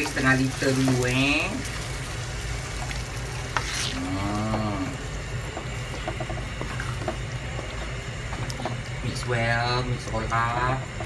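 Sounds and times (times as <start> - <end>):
food sizzling in a wok: 0.0 - 11.0
person humming: 3.9 - 5.0.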